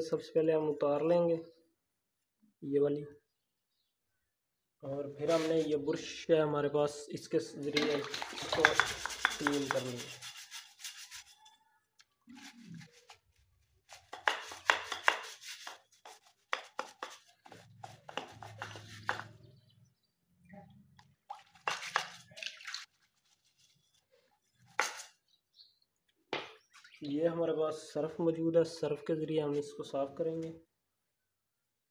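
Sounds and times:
brush scrubbing wet metal: 0:05.3 - 0:05.8, 0:07.6 - 0:11.5, 0:12.4 - 0:19.4, 0:21.2 - 0:25.1.

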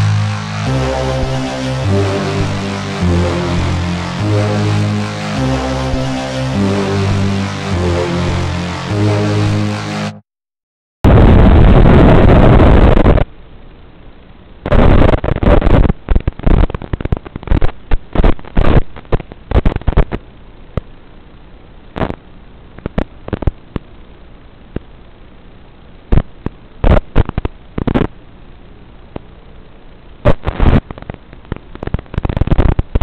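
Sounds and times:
static crackle bursts: 0:00.0 - 0:10.1, 0:11.0 - 0:33.0
steady low hiss: 0:00.0 - 0:10.2, 0:18.0 - 0:32.7.

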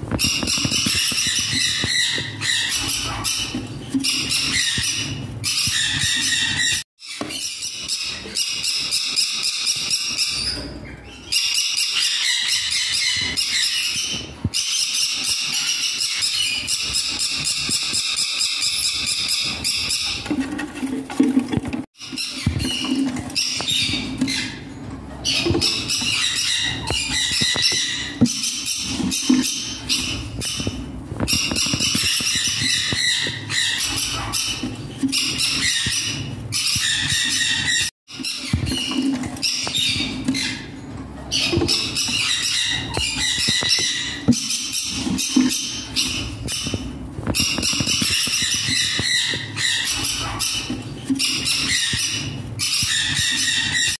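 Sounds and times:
chicks squeaky begging calls: 0:00.2 - 0:06.8, 0:22.1 - 0:54.0.

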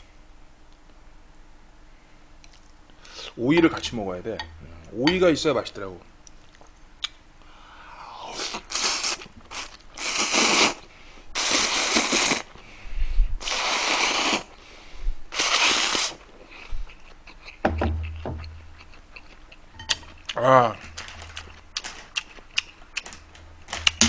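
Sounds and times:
man slurping noodles: 0:08.2 - 0:10.8, 0:11.4 - 0:12.5, 0:13.4 - 0:14.5.

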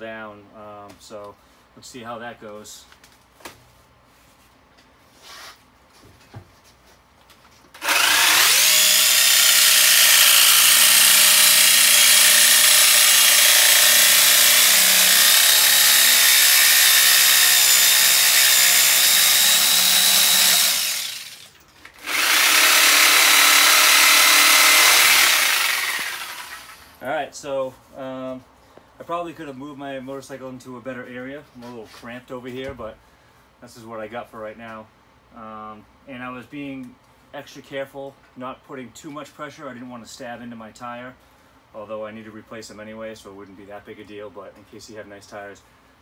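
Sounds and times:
reciprocating saw cutting steel: 0:07.8 - 0:27.0.

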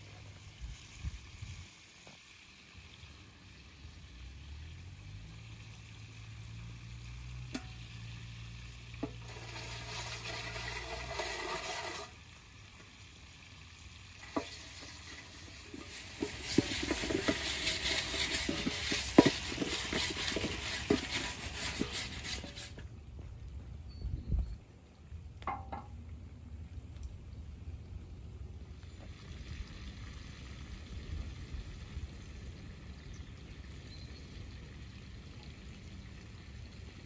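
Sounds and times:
food sizzling in a pan: 0:04.1 - 0:22.7.

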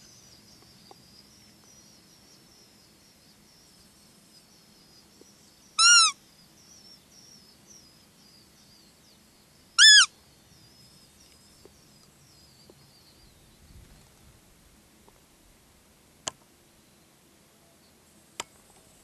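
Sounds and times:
bird singing faintly: 0:00.0 - 0:14.3
high piping deer lure calls: 0:05.8 - 0:06.2, 0:09.8 - 0:10.1.

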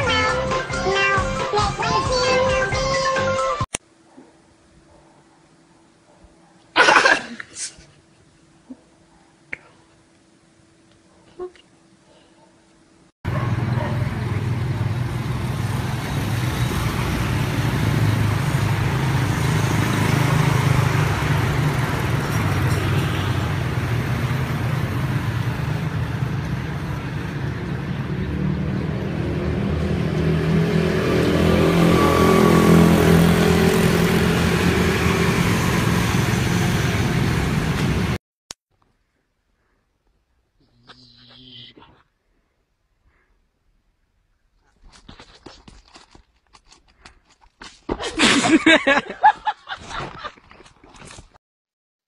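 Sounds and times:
vehicle engine running: 0:13.3 - 0:30.4
road traffic noise: 0:13.3 - 0:38.2.

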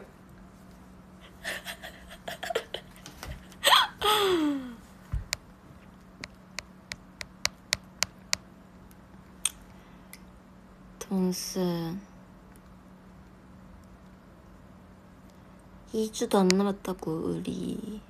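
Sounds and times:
woman's vocal sounds: 0:03.6 - 0:04.8.

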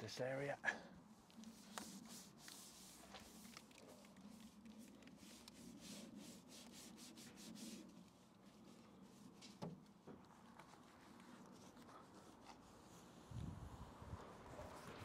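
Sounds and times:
brush scrubbing foam: 0:01.4 - 0:09.7.

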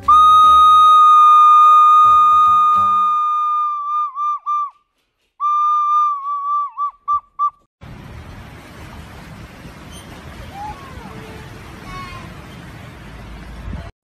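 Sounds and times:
recorder high note and toots: 0:00.0 - 0:04.8.

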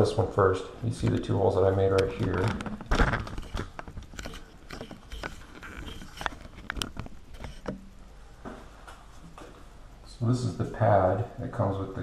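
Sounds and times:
clicks and rustles of handling: 0:01.0 - 0:07.9.

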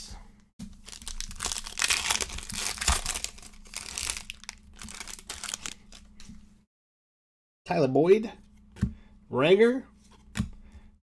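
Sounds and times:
foil wrapper crinkling: 0:00.8 - 0:06.1.

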